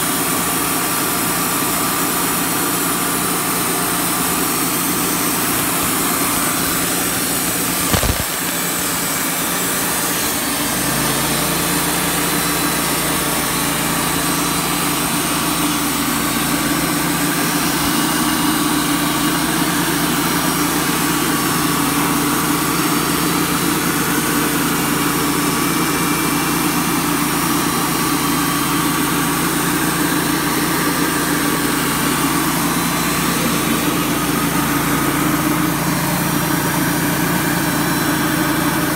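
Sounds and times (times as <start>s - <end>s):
band sawmill cutting wood: 0.0s - 38.9s
sharp knock: 7.8s - 8.8s.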